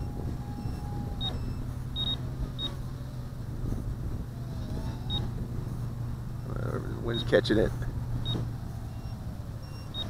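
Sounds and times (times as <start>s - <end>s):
low rumble of wind: 0.0s - 10.0s
short high beeps: 0.7s - 2.7s.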